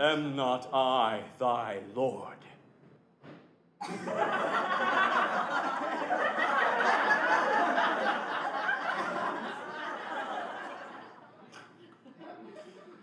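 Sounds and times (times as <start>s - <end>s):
audience laughing: 3.8s - 13.0s.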